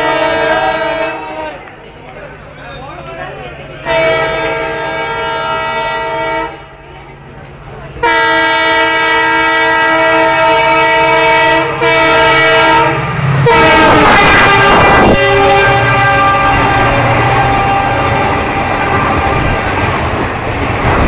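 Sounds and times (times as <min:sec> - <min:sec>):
diesel locomotive horn blasts: 0:00.0 - 0:01.6, 0:03.8 - 0:06.8, 0:08.0 - 0:19.9
locomotive rushing past: 0:00.0 - 0:21.0.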